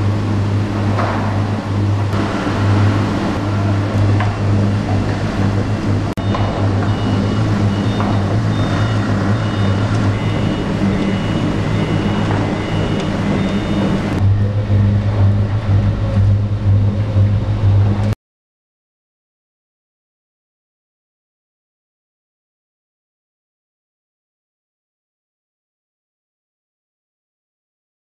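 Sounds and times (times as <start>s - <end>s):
machinery low hum: 0.0s - 18.2s
mechanical rushing noise: 0.0s - 18.2s.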